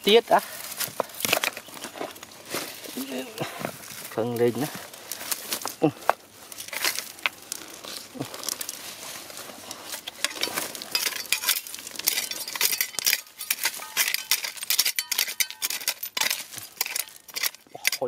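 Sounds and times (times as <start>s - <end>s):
hand tool scraping stones in soil: 0.1s - 18.0s.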